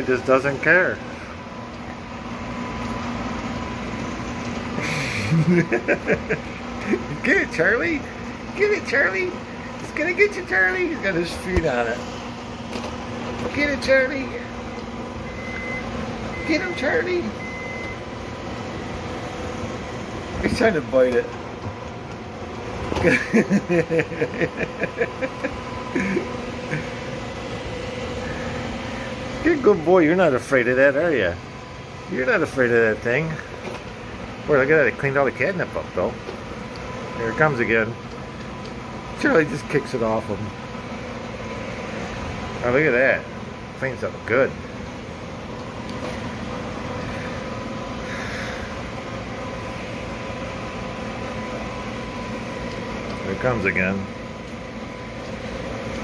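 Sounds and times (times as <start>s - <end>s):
robot vacuum cleaner humming: 0.0s - 56.0s
man laughing: 4.8s - 7.3s, 23.0s - 27.1s.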